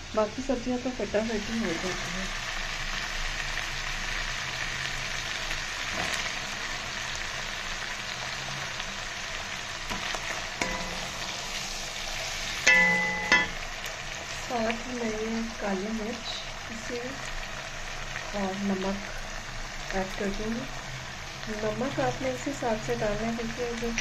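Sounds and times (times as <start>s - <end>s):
food sizzling in hot oil: 0.0s - 24.0s
loud knocks with ring: 12.7s - 13.6s.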